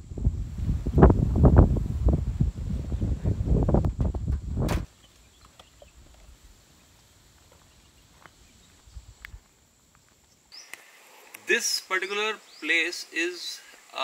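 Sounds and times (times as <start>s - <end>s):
wind rumbling on microphone: 0.0s - 4.9s.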